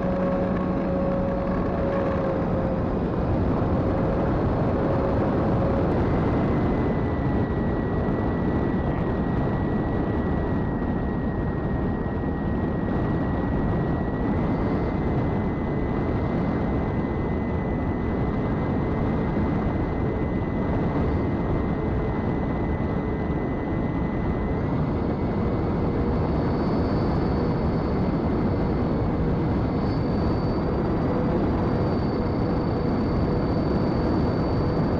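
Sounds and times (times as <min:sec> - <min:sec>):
electric motor whine: 0:00.0 - 0:17.6
wind rush on microphone: 0:00.0 - 0:34.9.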